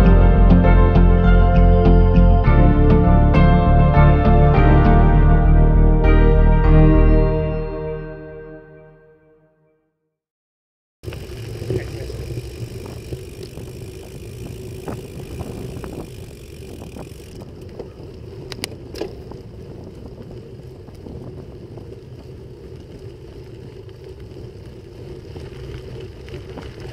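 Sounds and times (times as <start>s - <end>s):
small rattles: 11.0s - 19.3s
bicycle tyres rumbling on dirt: 11.0s - 26.9s.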